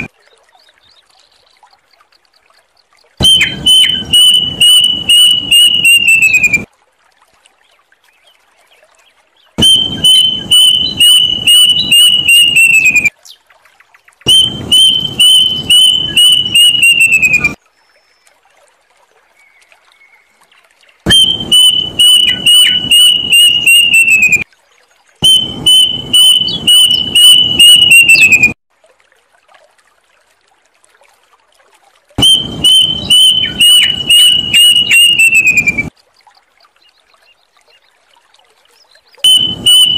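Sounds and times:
cuckoo calling: 0:03.2 - 0:06.7, 0:09.6 - 0:13.1, 0:14.3 - 0:17.6, 0:21.1 - 0:24.4, 0:25.2 - 0:28.6, 0:32.2 - 0:35.9, 0:39.2 - 0:39.9.

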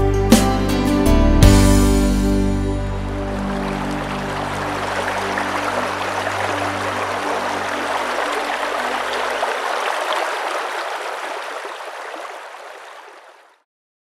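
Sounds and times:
stream running over rocks: 0:03.0 - 0:13.6.

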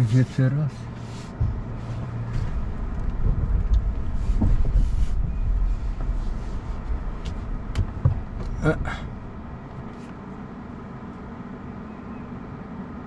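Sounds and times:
tyres rumbling over dirt: 0:00.0 - 0:10.1
faint knocks: 0:01.3 - 0:09.9.

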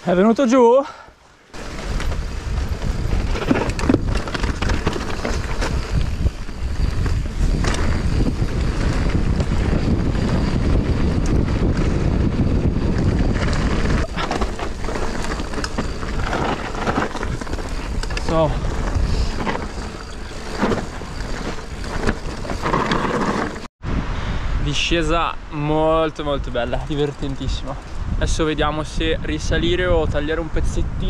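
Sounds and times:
bike tyres rumbling on dirt: 0:01.5 - 0:23.7
bike rattling and knocking: 0:01.6 - 0:23.7
wind buffeting microphone: 0:01.6 - 0:31.0.

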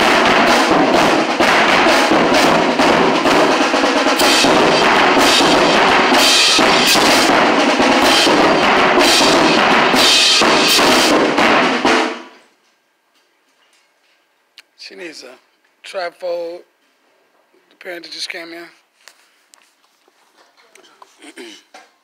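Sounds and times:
marching band playing: 0:00.0 - 0:12.4.

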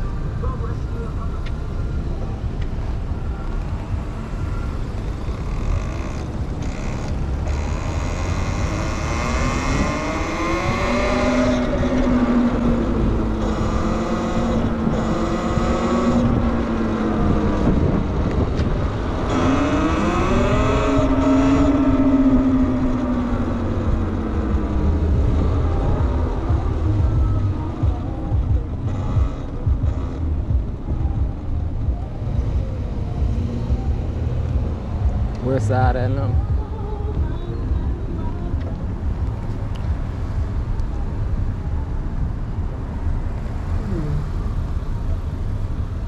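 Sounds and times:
low wind rumble on microphone: 0:00.0 - 0:46.0.

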